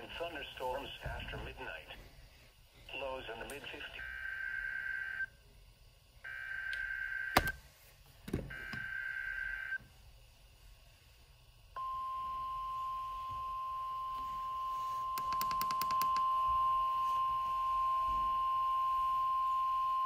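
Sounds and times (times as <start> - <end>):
steady alarm tone: 3.9 - 5.3, 6.2 - 7.5, 8.5 - 9.8, 11.8 - 20.0.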